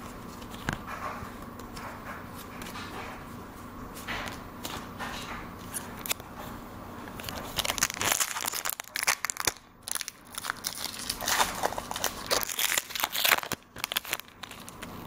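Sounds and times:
foil wrapper crinkling: 0:07.2 - 0:15.0.

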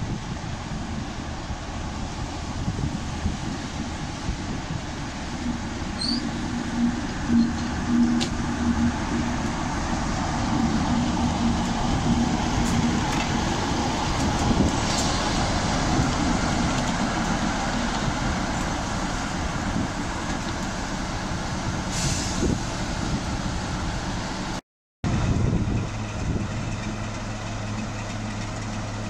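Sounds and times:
diesel locomotive engine rumble: 0:00.0 - 0:29.0
low hum: 0:00.6 - 0:21.7.

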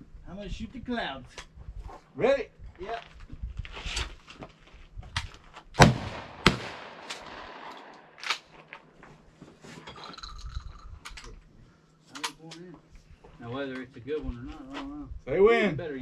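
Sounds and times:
shotgun shots: 0:05.8 - 0:08.5
faint sharp cracks: 0:06.1 - 0:08.9.

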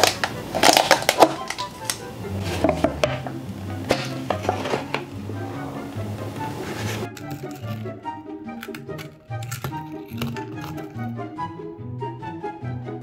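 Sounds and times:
packaging crinkling and crackling: 0:00.0 - 0:03.2, 0:08.6 - 0:11.0
lid peeled back: 0:00.0 - 0:11.2
background music with bass line: 0:01.2 - 0:13.0.

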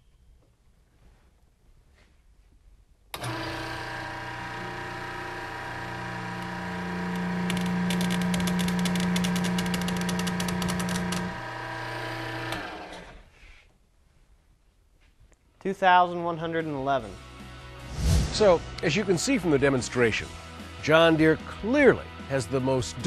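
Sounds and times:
hydraulic pump motor humming: 0:03.2 - 0:13.1.

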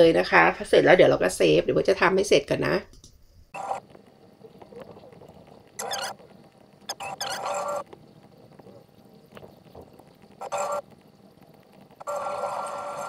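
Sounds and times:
video soundtrack snatches: 0:05.7 - 0:08.0, 0:08.7 - 0:10.9.

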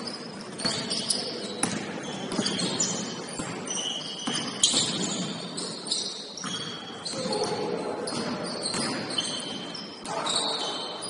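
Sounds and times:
sneakers squeaking: 0:00.0 - 0:11.0
basketball bouncing: 0:00.6 - 0:05.7, 0:06.4 - 0:09.2.

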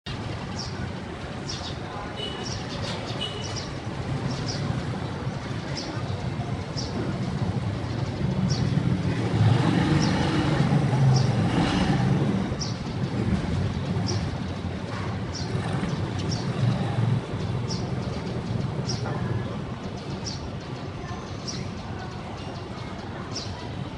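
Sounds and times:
steady traffic noise: 0:00.0 - 0:23.9
motor vehicle passing: 0:02.8 - 0:20.5.

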